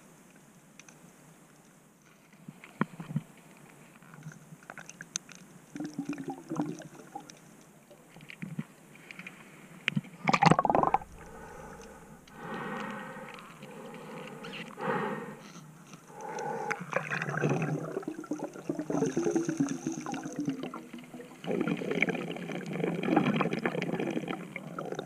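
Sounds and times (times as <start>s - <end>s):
rocks and shells clicking underwater: 2.6s - 14.8s, 15.4s - 25.0s
loud underwater bubbling burst: 10.3s - 11.8s, 16.9s - 25.0s
steady hum: 10.4s - 18.9s.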